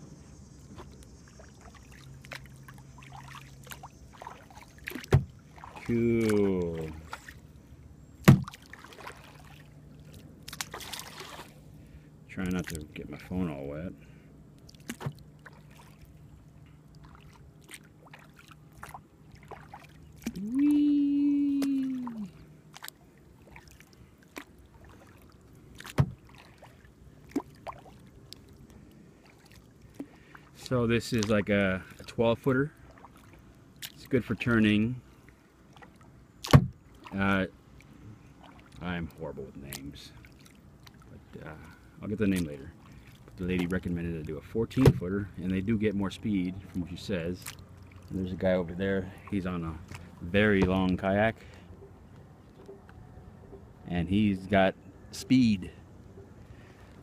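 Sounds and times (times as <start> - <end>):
paddle splashing in water: 0.7 - 7.6, 8.2 - 12.9, 14.6 - 45.6, 46.6 - 48.5, 49.1 - 53.7
paddle knocks: 4.9 - 6.4, 8.2 - 8.6, 25.8 - 26.4, 36.4 - 36.8, 44.8 - 45.1, 49.9 - 51.0.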